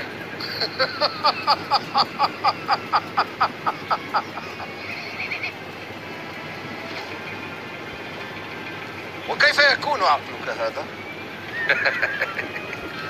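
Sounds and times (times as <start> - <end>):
man laughing heartily: 0.4 - 5.5, 11.5 - 13.0.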